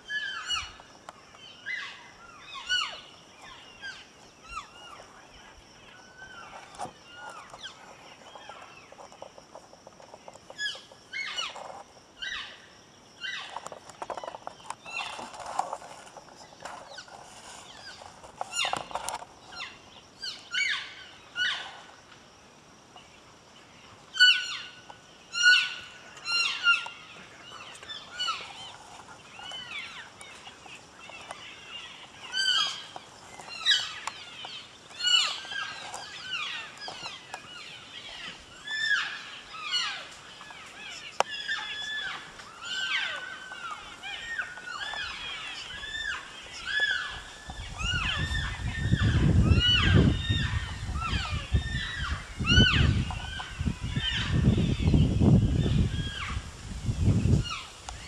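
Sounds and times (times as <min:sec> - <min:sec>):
elk mewing and chirping: 0:24.2 - 0:55.0.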